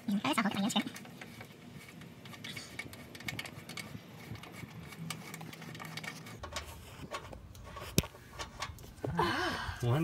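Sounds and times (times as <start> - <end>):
plastic clicks and scraping: 0.8 - 9.0.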